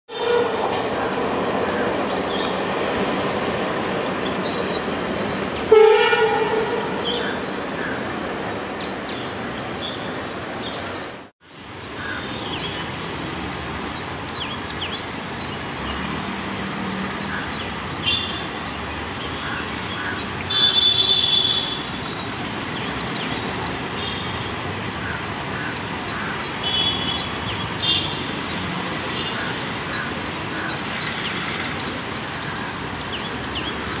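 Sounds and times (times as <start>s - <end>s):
train horn blast: 0.1s - 0.8s, 5.7s - 7.3s
distant train approaching: 0.1s - 20.5s
train passing on track: 0.1s - 34.0s
high bird calls: 6.7s - 11.2s.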